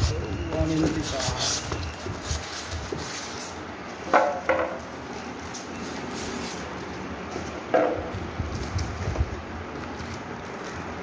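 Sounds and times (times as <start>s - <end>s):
sharp squeaky scrapes: 0.0s - 3.6s
cardboard and styrofoam handled: 0.0s - 7.5s.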